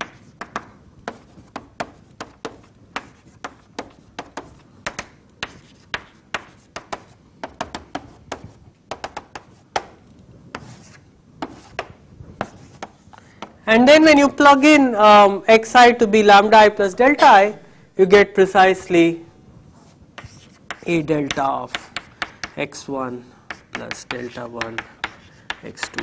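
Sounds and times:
chalk scraping on blackboard: 0.0 - 4.6, 5.4 - 9.6, 10.5 - 13.1, 19.7 - 22.6, 23.5 - 26.0
chalk tapping on blackboard: 0.0 - 13.6, 19.8 - 22.8, 23.5 - 26.0.

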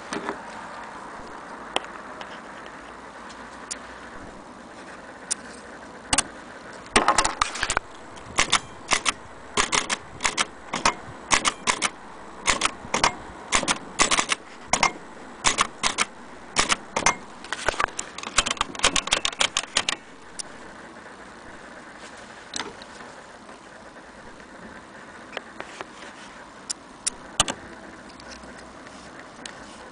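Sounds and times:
typewriter clacking: 7.0 - 20.5.

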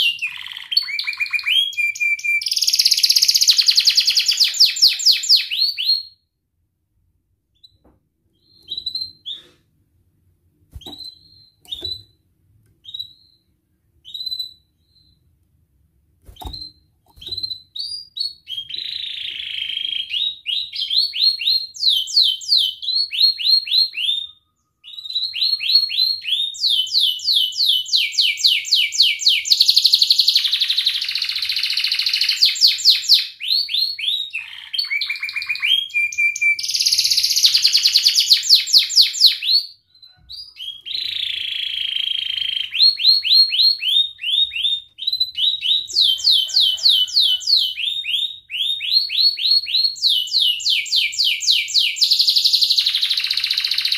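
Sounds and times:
canary singing trills: 0.0 - 6.1, 10.7 - 12.2, 33.9 - 53.9.

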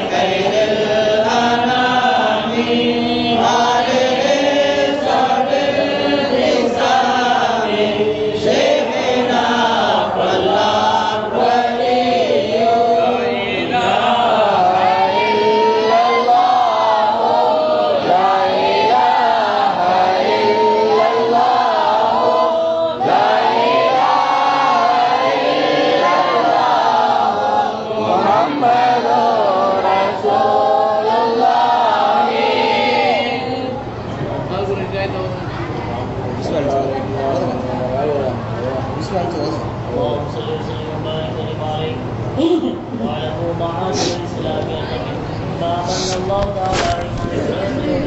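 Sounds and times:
men chanting together: 0.0 - 33.9.

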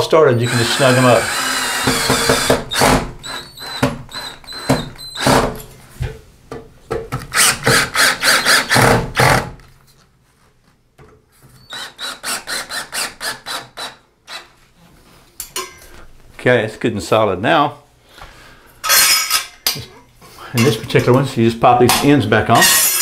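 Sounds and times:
cordless drill driving screws: 0.3 - 5.6, 7.3 - 9.4, 11.7 - 14.5.

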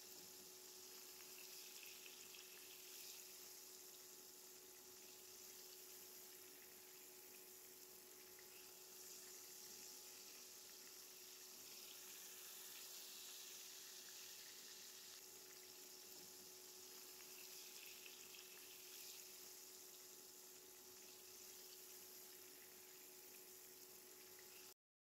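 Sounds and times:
food sizzling in a pan: 0.0 - 24.8.

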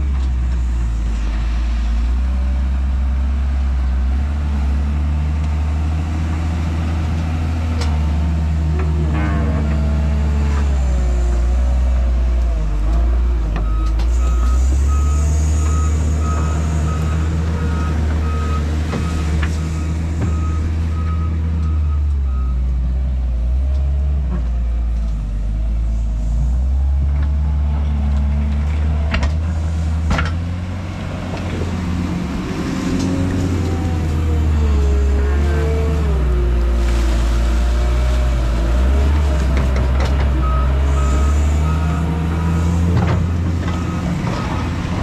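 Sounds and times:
heavy machinery diesel engine: 0.0 - 45.0
reversing alarm beeping: 13.6 - 22.6, 40.4 - 42.8.

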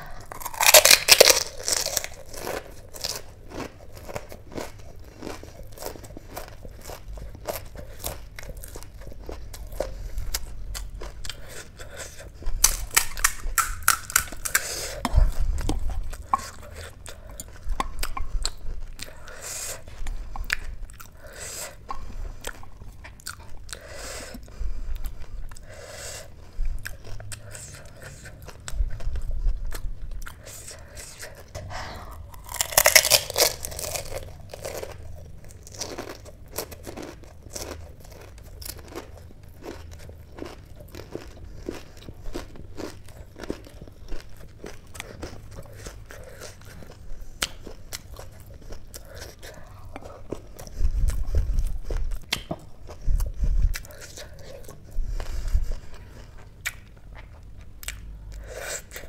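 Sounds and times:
crunching and chewing: 0.0 - 59.0
crisp shells crackling: 32.4 - 35.0.

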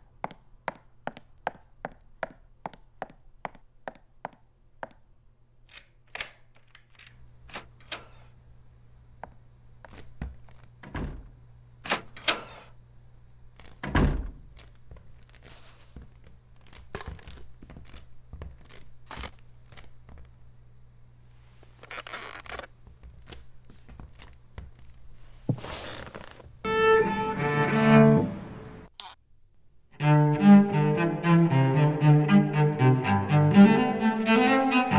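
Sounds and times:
footsteps on wooden floor: 14.5 - 19.0, 22.8 - 26.5
rustling noise: 14.5 - 20.2, 21.3 - 26.6.

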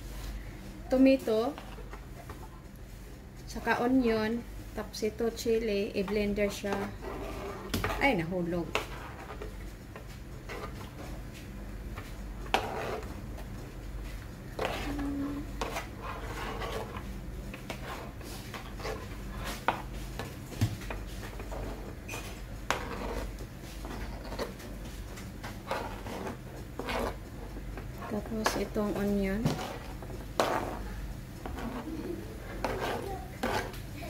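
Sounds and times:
steady low hum: 0.0 - 34.0
knife scraping cutting board: 6.4 - 9.5, 12.5 - 13.1, 14.6 - 20.3, 21.1 - 24.7, 25.4 - 33.8.

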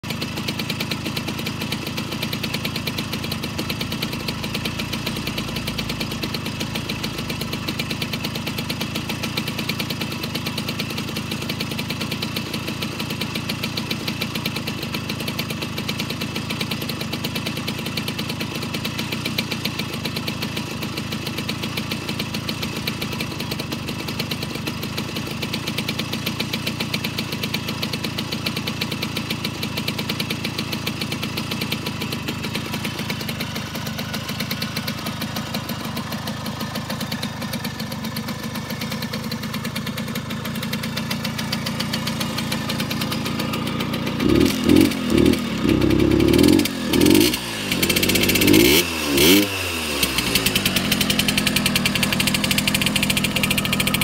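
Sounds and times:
moped engine idling: 0.0 - 54.0.

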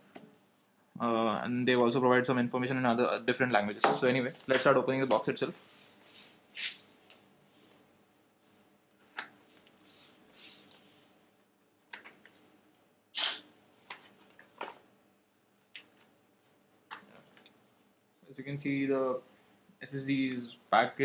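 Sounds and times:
knife slitting tape: 13.2 - 13.5.

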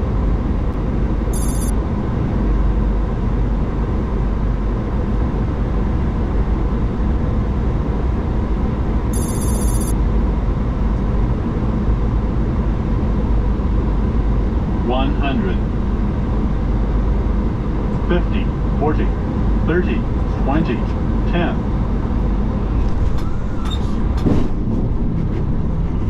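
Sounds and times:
airflow and engine noise: 0.0 - 26.0
high pulsing electronic tone: 1.3 - 1.7, 9.2 - 9.9.

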